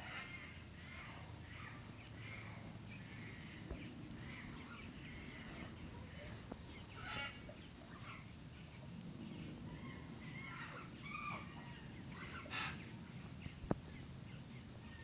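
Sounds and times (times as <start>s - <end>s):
low background noise: 0.0s - 15.0s
high-pitched animal calls: 9.7s - 12.9s.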